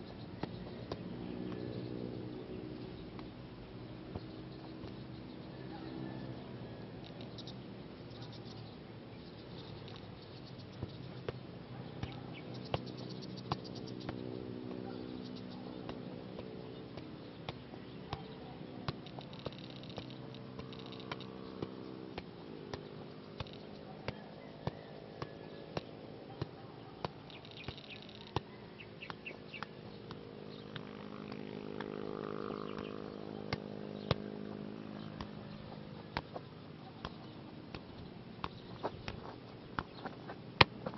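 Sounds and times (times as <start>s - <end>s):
football taps against foot: 3.1s - 3.3s, 15.8s - 32.0s, 35.2s - 40.9s.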